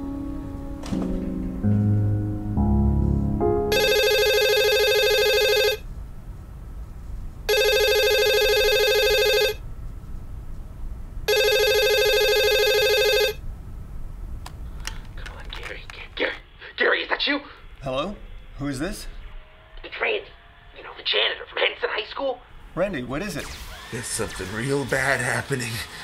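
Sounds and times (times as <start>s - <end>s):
desk telephone ringing: 3.7s - 5.8s, 7.5s - 9.6s, 11.3s - 13.4s.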